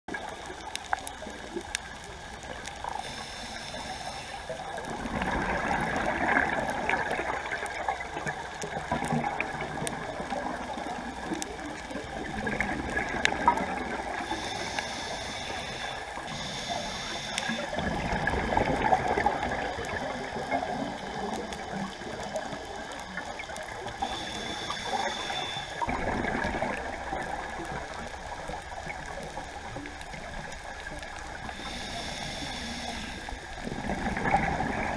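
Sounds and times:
faint steady tone: 0:00.1 - 0:34.6
scuba regulator breathing underwater: 0:02.8 - 0:07.8, 0:12.4 - 0:22.3, 0:23.8 - 0:28.0, 0:31.4 - 0:34.9
bubbling exhaust: 0:03.7 - 0:14.3.

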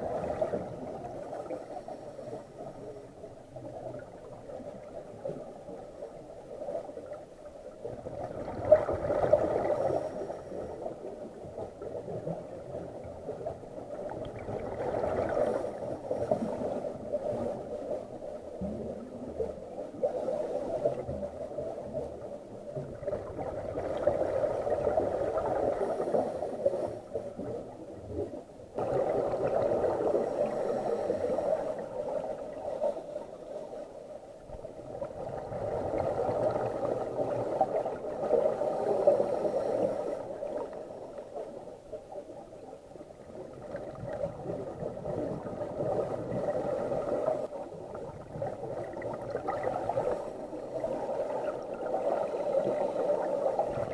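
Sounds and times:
bubbles gurgling: 0:07.8 - 0:09.9, 0:12.0 - 0:17.6, 0:27.5 - 0:30.7, 0:34.8 - 0:38.6, 0:43.3 - 0:53.9
regulator breathing underwater: 0:30.0 - 0:33.6, 0:38.3 - 0:40.7.

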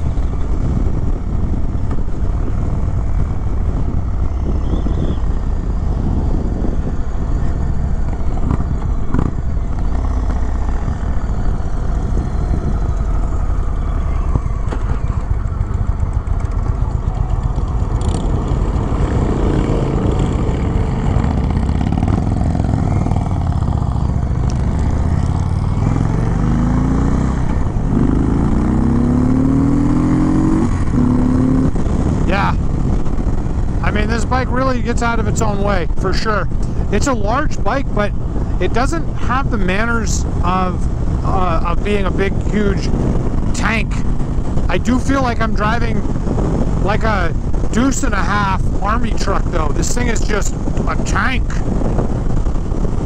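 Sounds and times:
motorcycle engine running: 0:00.0 - 0:53.0
wind buffeting microphone: 0:00.0 - 0:53.0.

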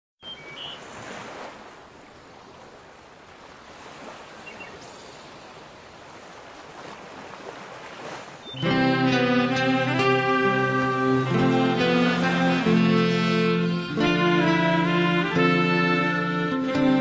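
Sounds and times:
waves lapping on a shore: 0:00.3 - 0:17.0
string orchestra chord: 0:08.6 - 0:17.0.

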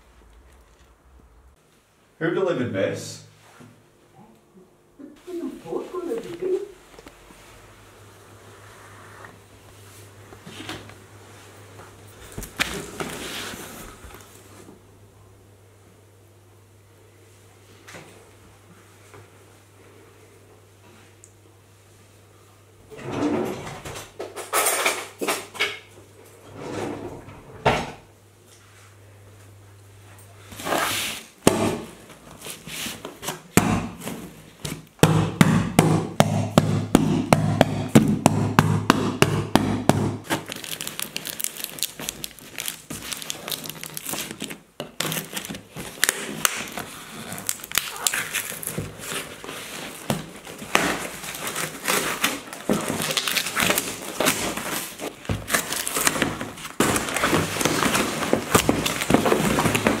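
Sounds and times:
cardboard and wrapping rustling: 0:12.1 - 0:14.7, 0:32.0 - 0:34.9, 0:40.2 - 1:00.0
packing tape ripping: 0:40.2 - 1:00.0.

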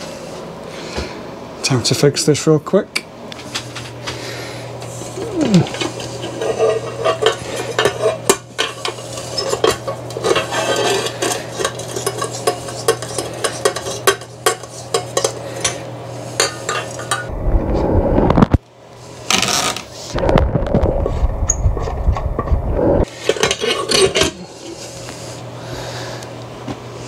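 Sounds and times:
steady low hum: 0:00.0 - 0:27.0
tools clicking and clattering: 0:05.6 - 0:15.8, 0:23.2 - 0:24.4
loud low rumble: 0:17.3 - 0:18.6.

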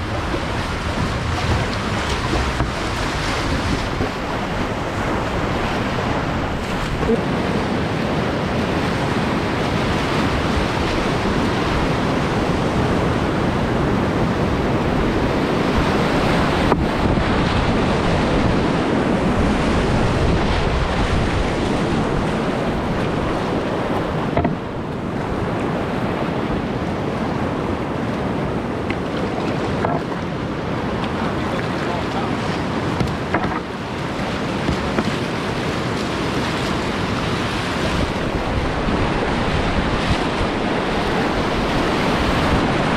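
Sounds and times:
rushing whitewater rapids: 0:00.0 - 0:42.9
knock on kayak: 0:00.1 - 0:04.3, 0:24.3 - 0:24.7, 0:33.0 - 0:33.7, 0:34.6 - 0:35.2.

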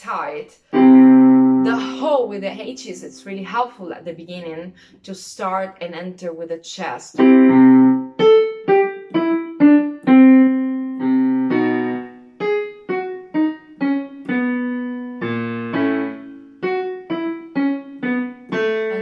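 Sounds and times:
digital piano notes and chords: 0:00.7 - 0:03.1, 0:07.2 - 0:19.0.

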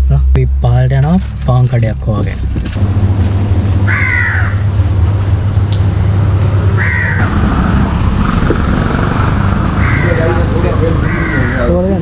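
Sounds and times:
steady low hum: 0:00.0 - 0:10.9
crow cawing: 0:03.9 - 0:04.7, 0:06.8 - 0:07.4, 0:09.6 - 0:12.0.

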